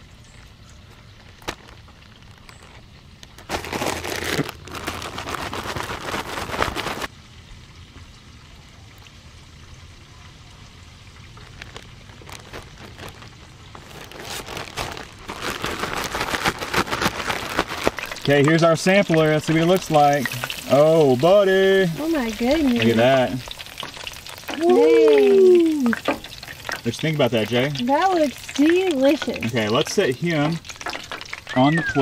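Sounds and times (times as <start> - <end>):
plastic bag rustling with powder: 1.2 - 7.1, 11.3 - 24.7.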